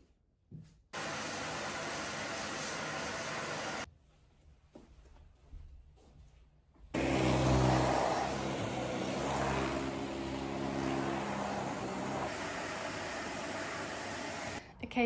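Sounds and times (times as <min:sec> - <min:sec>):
vacuum cleaner running on carpet: 0:01.0 - 0:03.9, 0:07.0 - 0:14.6.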